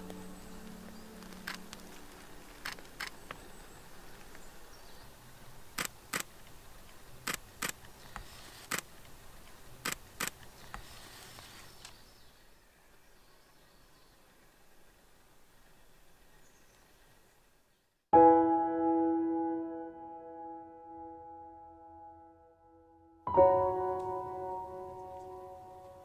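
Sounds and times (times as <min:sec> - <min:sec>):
camera shutter clicks: 0:05.8 - 0:06.3, 0:07.3 - 0:08.9, 0:09.8 - 0:12.0.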